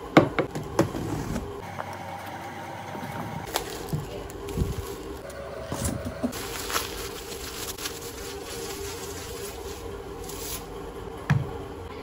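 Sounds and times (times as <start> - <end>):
low buzzing hum: 0.0 - 12.0
bubble wrap crinkling: 3.5 - 5.3, 6.3 - 10.7.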